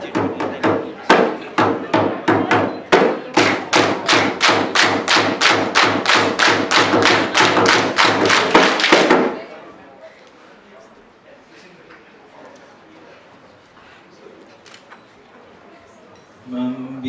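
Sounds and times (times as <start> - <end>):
drum thumps: 0.0 - 9.4
group clapping in unison: 3.4 - 9.4.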